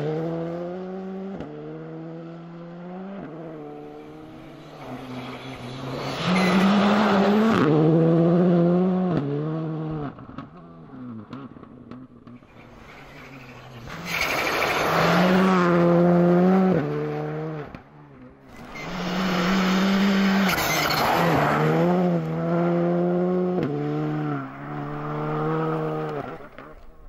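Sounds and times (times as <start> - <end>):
rally car engines passing: 0.0 - 27.0
gear changes: 11.2 - 27.0.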